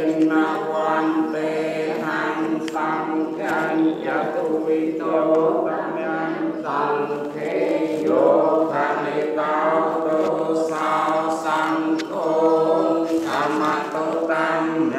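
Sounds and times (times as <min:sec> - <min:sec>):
group chanting in unison: 0:00.0 - 0:14.9.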